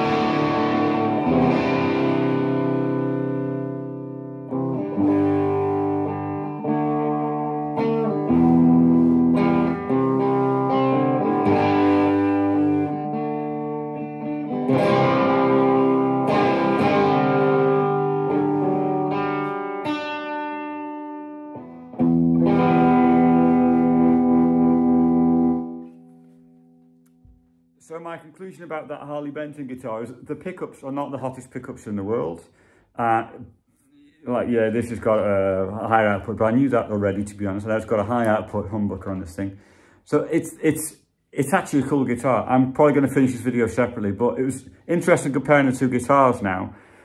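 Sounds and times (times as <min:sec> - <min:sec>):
electric guitar chords strummed: 0:00.0 - 0:27.6.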